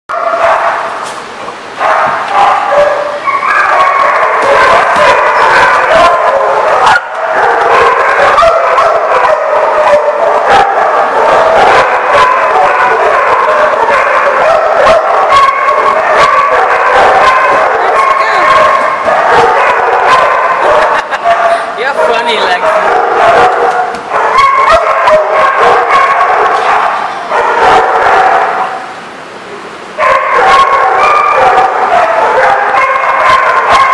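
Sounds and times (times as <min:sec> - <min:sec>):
dogs barking and yipping: 0:00.1 - 0:29.0, 0:30.0 - 0:33.9.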